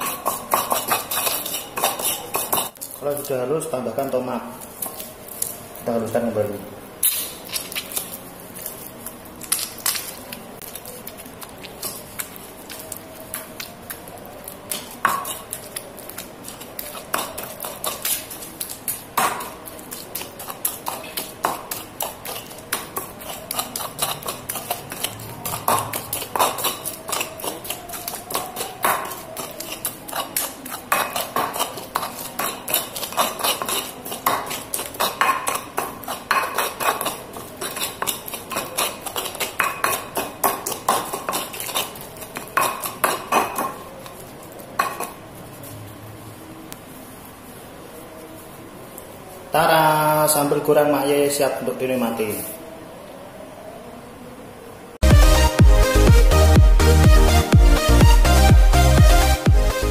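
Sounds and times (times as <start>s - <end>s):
pestle grinding in stone mortar: 0.0s - 6.0s, 7.0s - 45.2s.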